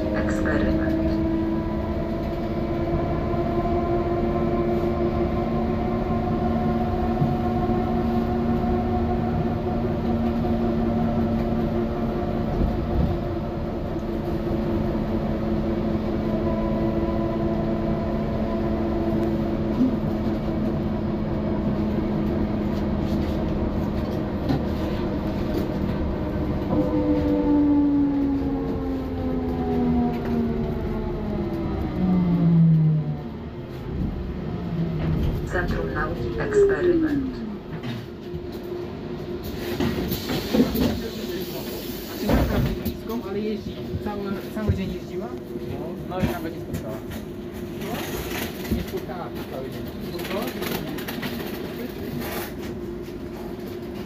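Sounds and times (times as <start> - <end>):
road rumble: 0.0 - 54.0.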